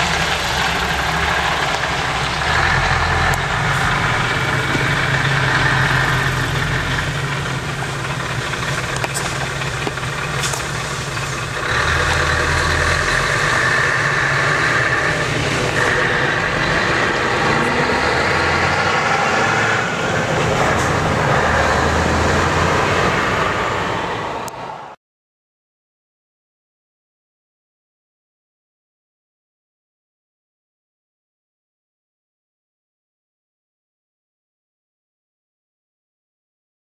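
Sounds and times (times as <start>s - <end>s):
diesel truck engine running: 0.0s - 25.0s.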